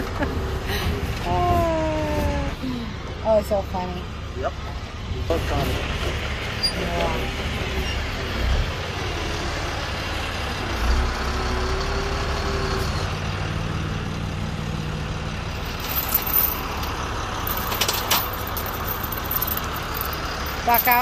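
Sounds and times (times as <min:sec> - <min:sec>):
truck engine idling: 0:00.0 - 0:21.0
metallic clinks of tow chain: 0:15.6 - 0:21.0.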